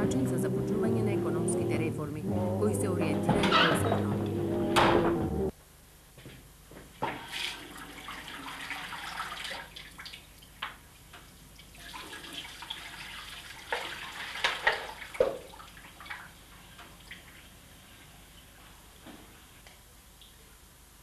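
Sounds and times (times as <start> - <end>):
water splashing into sink: 7.0 - 10.8, 11.6 - 17.4
tap water running into sink: 7.0 - 17.2.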